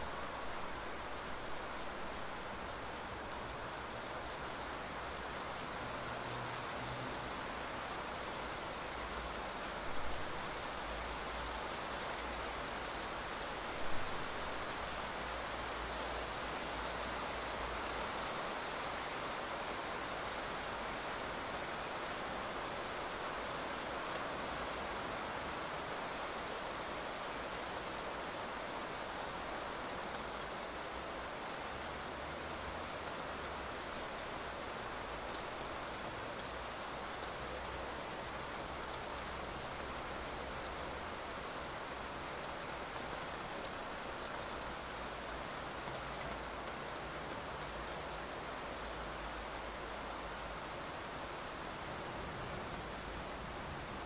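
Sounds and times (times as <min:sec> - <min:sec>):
steady rain falling: 0:00.0 - 0:54.0
sharp raindrop ticks: 0:29.0 - 0:54.0.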